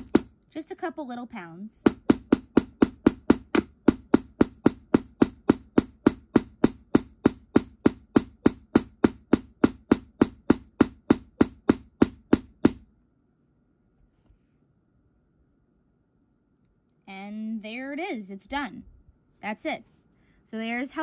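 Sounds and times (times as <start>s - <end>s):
hammer striking metal punch: 0.0s - 0.3s, 1.8s - 12.8s.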